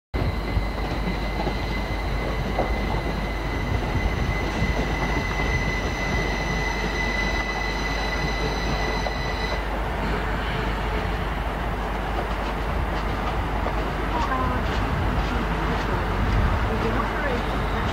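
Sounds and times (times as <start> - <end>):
high-pitched wheel squeal: 0.2 - 9.6
trains rumbling past: 0.2 - 17.9.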